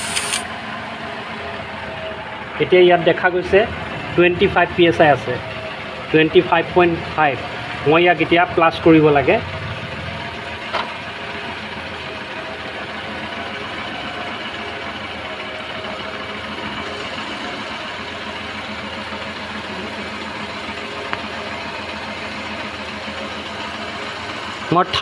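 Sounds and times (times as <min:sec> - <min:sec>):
car engine idling: 0:00.0 - 0:25.0.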